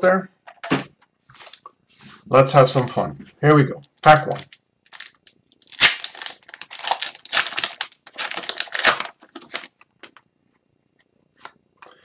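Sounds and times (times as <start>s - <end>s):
card pack wrapper crinkling: 3.8s - 10.3s.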